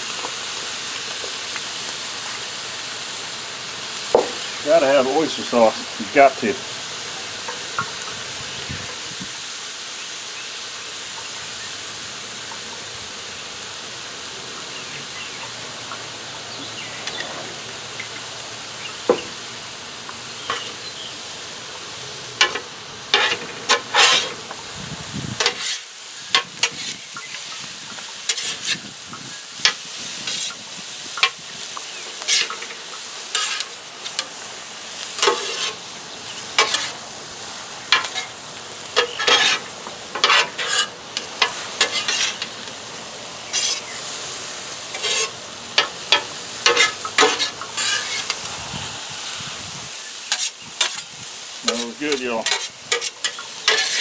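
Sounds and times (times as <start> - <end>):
rice sizzling on griddle: 0.0 - 54.0
metal spatulas scraping griddle: 20.4 - 20.8, 22.4 - 24.5, 25.4 - 27.0, 28.3 - 28.9, 29.6 - 30.6, 32.2 - 34.3, 35.2 - 35.8, 36.5 - 37.0, 37.9 - 42.6, 43.5 - 44.1, 44.8 - 48.5, 50.3 - 54.0.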